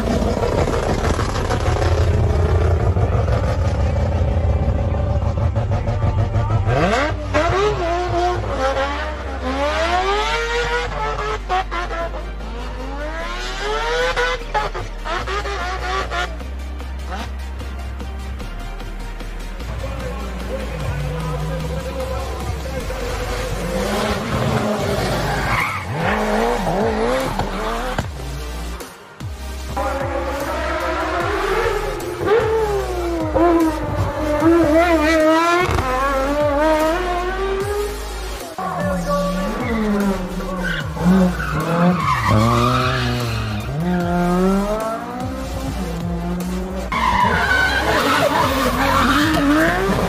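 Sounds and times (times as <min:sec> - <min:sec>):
race car engine revving: 0:00.0 - 0:17.7, 0:19.5 - 0:50.0
tyres skidding and squealing: 0:19.5 - 0:50.0
tyres squealing: 0:38.6 - 0:44.2, 0:46.9 - 0:50.0.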